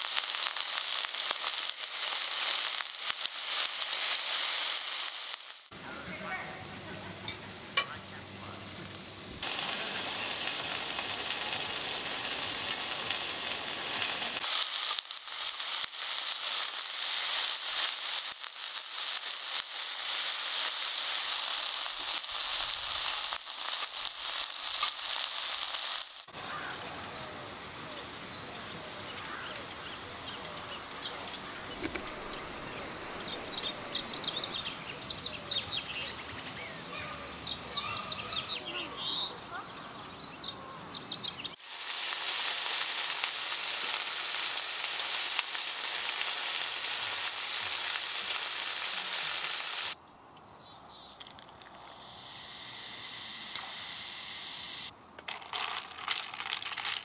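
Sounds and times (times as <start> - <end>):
food sizzling in frying pan: 0.0 - 5.8, 8.7 - 30.2, 30.8 - 34.7, 41.5 - 50.0
birds chirping: 26.4 - 41.6.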